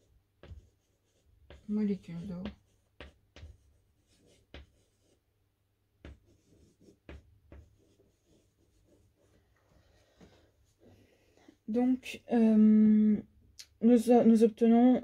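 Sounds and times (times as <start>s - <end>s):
chalk scratching: 0.0s - 5.2s, 6.0s - 11.6s
chalk tapping on a blackboard: 0.0s - 5.2s, 6.0s - 9.3s.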